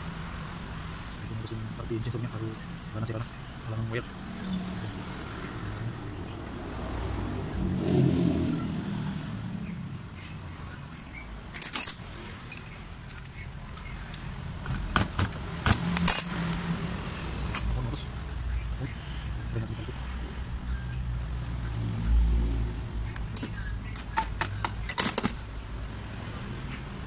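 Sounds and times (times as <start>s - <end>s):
metal parts clinking: 11.4s - 16.6s, 17.5s - 17.8s, 23.1s - 25.4s.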